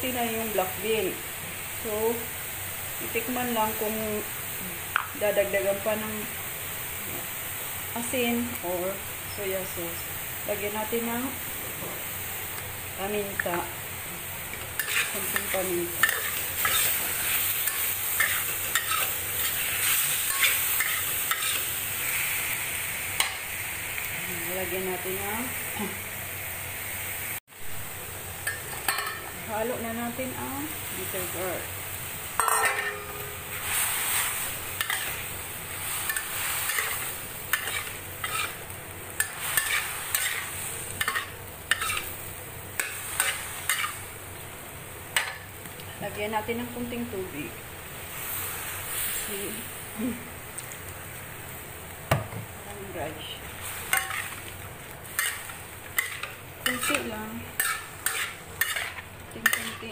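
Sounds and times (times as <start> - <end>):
food sizzling in a wok: 0.0 - 59.9
metal spatula scraping a pan: 14.8 - 22.4, 32.4 - 42.2, 42.8 - 44.0, 53.6 - 59.9.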